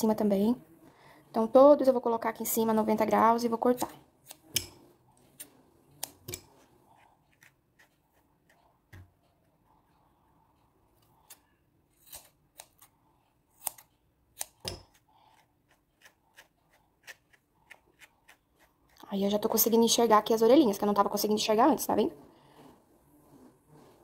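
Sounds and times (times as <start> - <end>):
scissors snipping yarn: 3.4 - 9.5, 11.0 - 19.6
brush strokes through yarn: 22.0 - 24.0.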